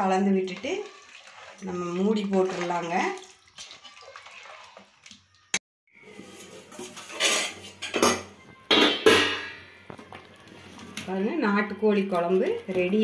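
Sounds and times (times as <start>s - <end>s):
spoon scraping a metal pot: 6.2s - 8.2s.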